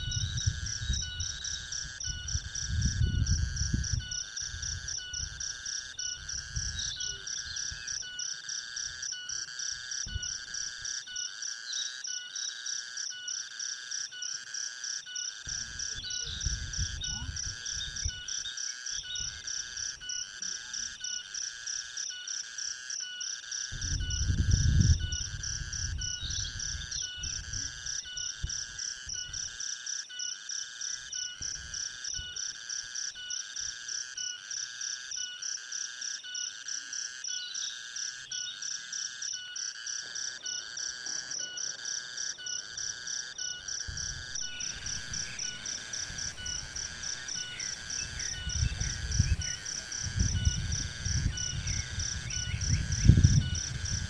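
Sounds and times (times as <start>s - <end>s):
bird chirps: 0.0s - 10.4s, 15.1s - 21.3s, 23.8s - 28.5s, 37.3s - 38.7s, 40.3s - 54.0s
chorus of calling insects: 0.0s - 54.0s.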